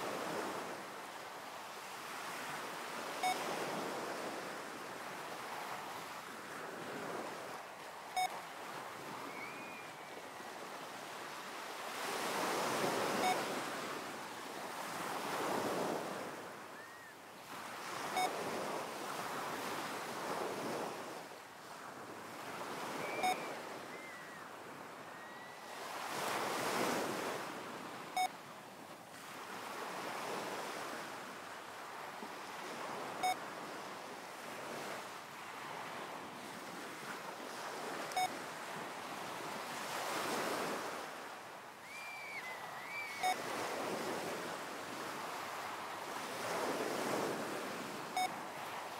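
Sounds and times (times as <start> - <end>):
ocean waves washing in: 0.0 - 16.8, 17.4 - 28.3, 29.1 - 48.9
short electronic beep: 23.0 - 23.5, 38.1 - 38.4, 43.0 - 43.4.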